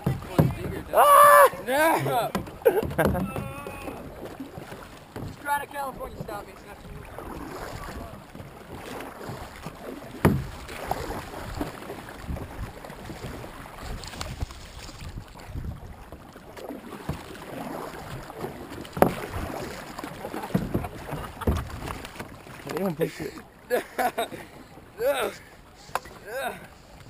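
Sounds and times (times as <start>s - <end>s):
sharp knocks: 0.0s - 0.9s, 2.3s - 3.8s, 10.2s - 10.6s
paddles splashing: 0.0s - 27.0s
water sloshing against hulls: 0.0s - 27.0s
wind on microphone: 12.2s - 16.0s.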